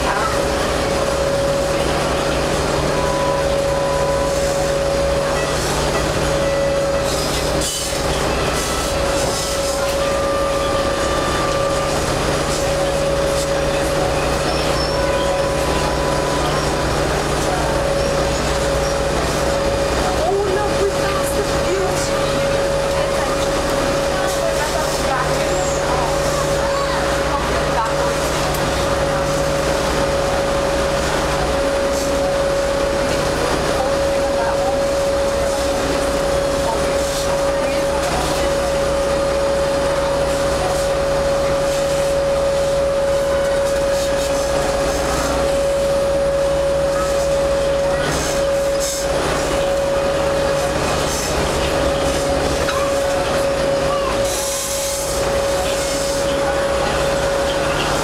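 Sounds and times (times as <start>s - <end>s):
boat engine drone: 0.0s - 58.0s
constant humming tone: 0.0s - 58.0s
constant whine: 0.0s - 58.0s.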